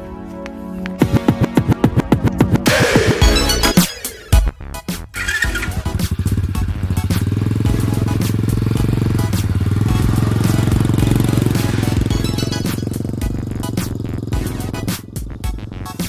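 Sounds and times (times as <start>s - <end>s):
small motorbike engine puttering: 5.1s - 16.0s.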